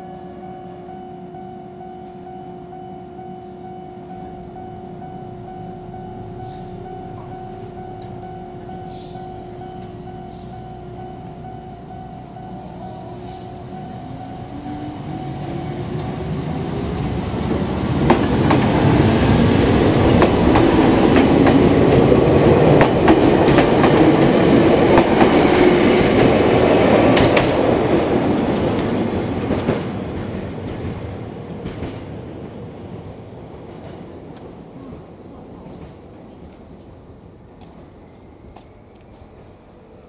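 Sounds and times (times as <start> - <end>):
electric train motor whine: 0.1 - 22.3.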